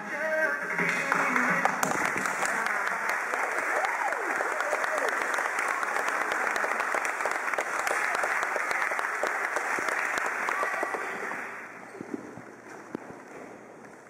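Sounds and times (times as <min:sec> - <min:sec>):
applause: 0:00.8 - 0:11.7.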